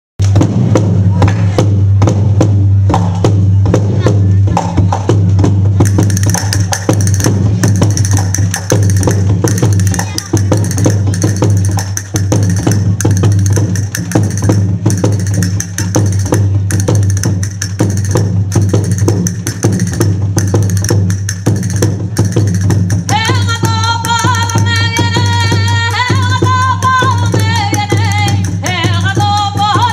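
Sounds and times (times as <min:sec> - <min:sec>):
folk drum and wood percussion: 0:00.2 - 0:29.9
high melody: 0:05.8 - 0:24.5.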